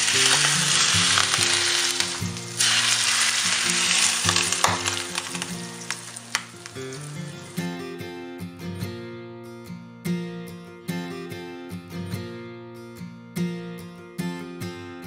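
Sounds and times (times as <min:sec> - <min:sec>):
hot oil sizzling: 0:00.0 - 0:07.7.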